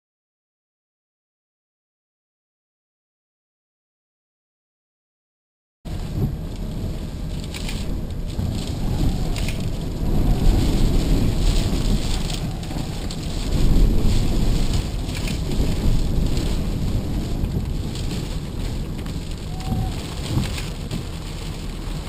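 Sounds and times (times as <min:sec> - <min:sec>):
gusty wind buffeting microphone: 0:05.9 - 0:22.0
light rain hitting camera: 0:05.9 - 0:22.0.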